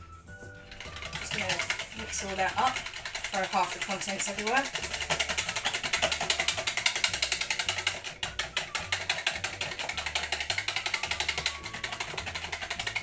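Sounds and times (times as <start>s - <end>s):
background music with bass line: 0.0s - 2.6s
hand whisk clicking in plastic jug: 0.6s - 13.0s.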